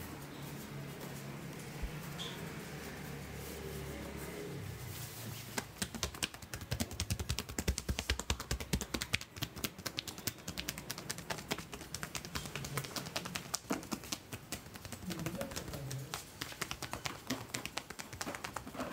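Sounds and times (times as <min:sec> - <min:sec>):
hands slapping on back: 0:05.5 - 0:18.7.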